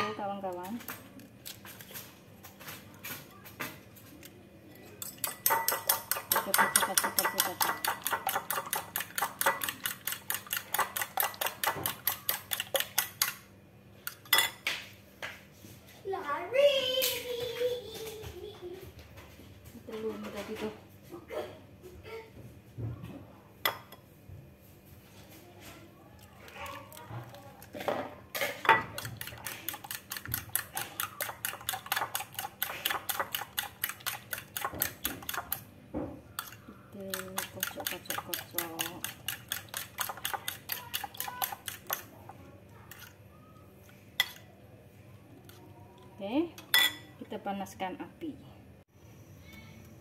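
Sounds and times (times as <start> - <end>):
fork whisking eggs in a bowl: 4.9 - 14.5, 26.1 - 35.7, 36.3 - 43.2.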